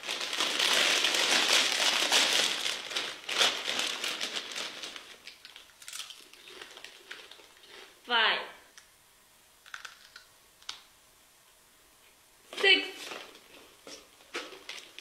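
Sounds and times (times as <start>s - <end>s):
chip bags crinkling: 0.0s - 8.0s, 9.7s - 10.2s, 13.0s - 15.0s
tortilla chips crunching: 0.0s - 8.0s.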